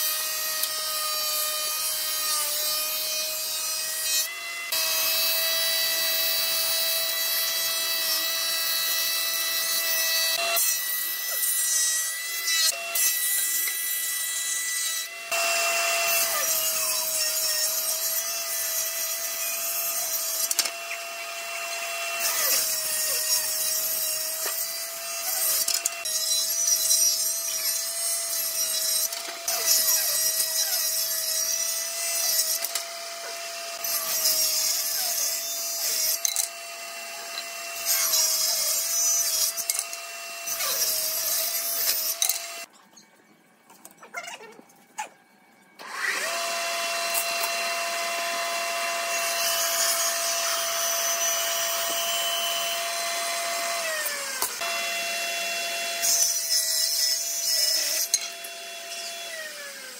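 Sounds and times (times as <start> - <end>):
power wood planer running: 15.1 - 16.3, 45.8 - 56.0.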